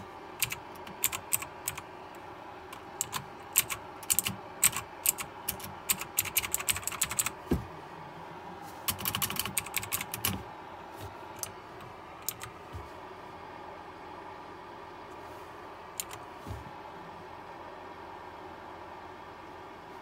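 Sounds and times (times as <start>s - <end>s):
mechanical keyboard keys clicking: 0.4s - 1.8s, 2.7s - 7.3s, 8.9s - 10.4s, 12.2s - 12.5s, 16.0s - 16.2s.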